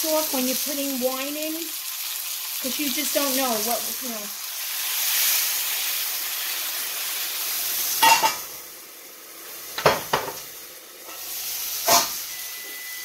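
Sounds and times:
steak sizzling in a skillet: 0.0 - 13.0
metal lid clanking on pan: 8.0 - 8.5, 9.8 - 10.4, 11.8 - 12.2.

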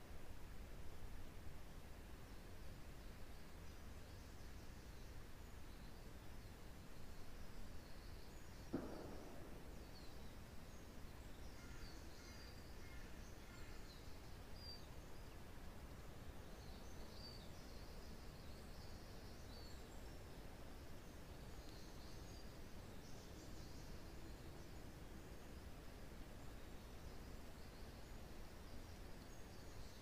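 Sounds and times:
small birds chirping: 3.1 - 30.0
short knock: 8.7 - 10.1
low wind rumble: 8.7 - 13.5.

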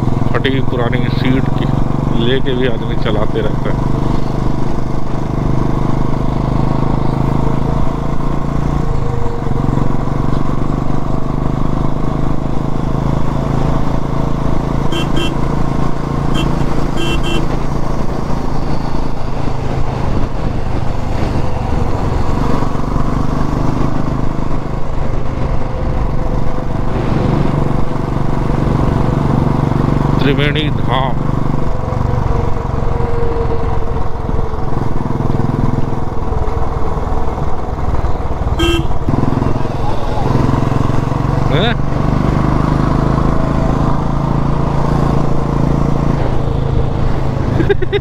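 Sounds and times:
motorcycle engine running: 0.0 - 48.0
vehicle horn beeps: 14.9 - 15.5, 16.3 - 17.6, 38.6 - 39.0.

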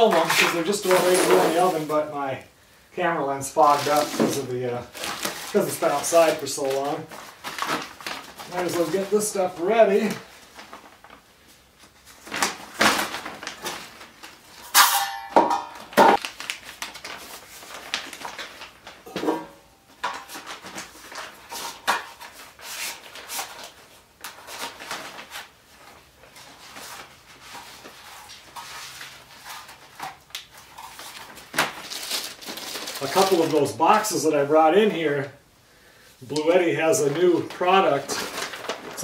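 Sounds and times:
plastic bags rustling: 0.0 - 2.1, 3.4 - 35.3, 36.2 - 39.0.

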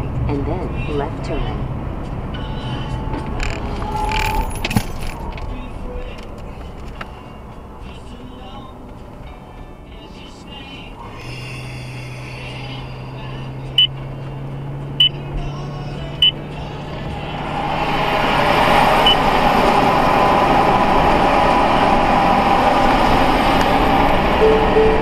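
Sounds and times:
tyre and road noise in car: 0.0 - 25.0
short high beeps: 24.4 - 25.0.

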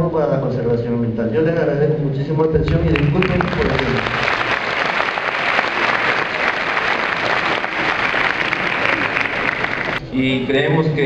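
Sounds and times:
audience applauding: 2.7 - 10.0.

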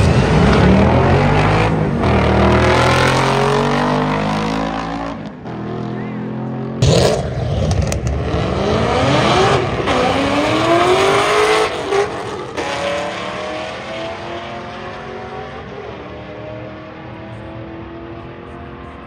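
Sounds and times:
drag car engine accelerating: 0.0 - 19.0.

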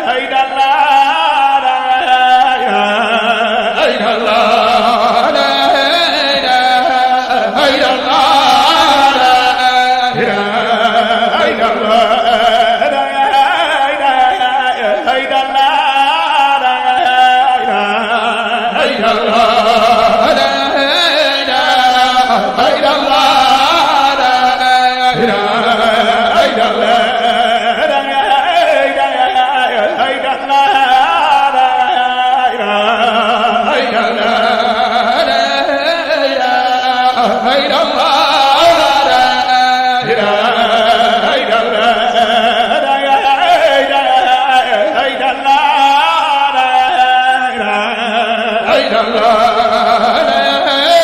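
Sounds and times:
man chanting: 0.0 - 51.0.

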